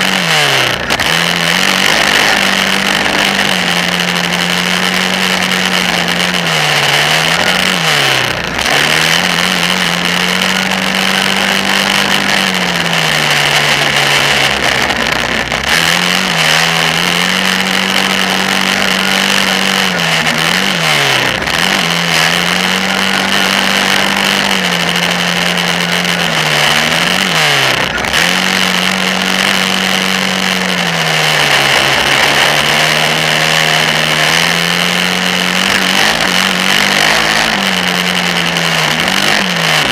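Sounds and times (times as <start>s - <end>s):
atv engine revving: 0.0s - 39.9s.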